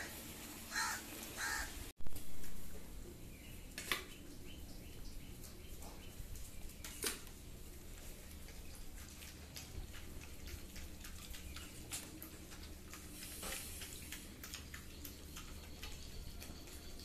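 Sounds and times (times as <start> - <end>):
dogs lapping and chewing: 4.0 - 17.0.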